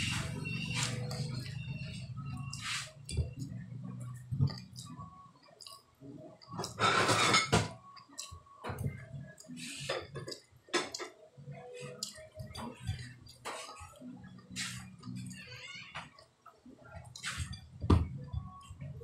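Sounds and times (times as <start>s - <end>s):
mouth smacks and chewing: 5.6s - 5.8s.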